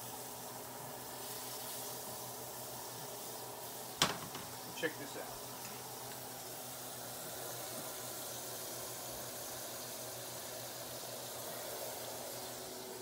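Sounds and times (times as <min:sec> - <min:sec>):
food sizzling in pans: 0:00.0 - 0:13.0.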